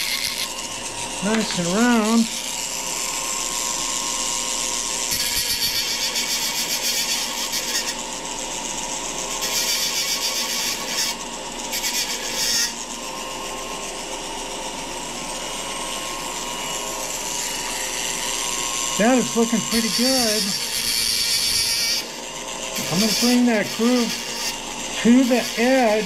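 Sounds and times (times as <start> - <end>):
high-pitched grinding hiss: 0.0 - 8.1, 15.3 - 26.0
rotary tool whining: 0.0 - 26.0.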